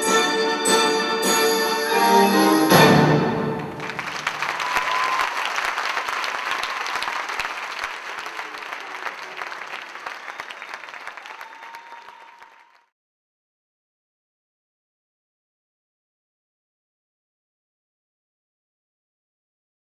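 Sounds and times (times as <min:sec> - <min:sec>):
audience applauding: 0:03.3 - 0:12.9.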